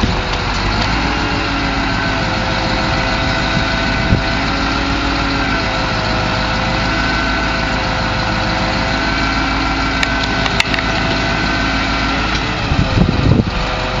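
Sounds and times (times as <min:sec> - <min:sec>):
diesel truck engine idling: 0:00.0 - 0:14.0
sharp clicks: 0:10.0 - 0:11.2.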